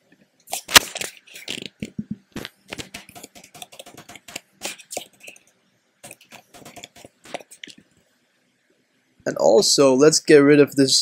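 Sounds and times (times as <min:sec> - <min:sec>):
computer keyboard typing: 0:02.8 - 0:05.4, 0:06.0 - 0:07.7.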